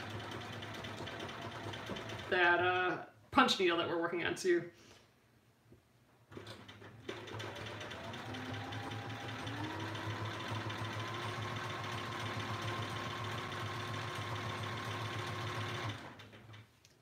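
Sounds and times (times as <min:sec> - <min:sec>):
sewing machine stitching: 0:00.0 - 0:02.6, 0:06.3 - 0:16.7.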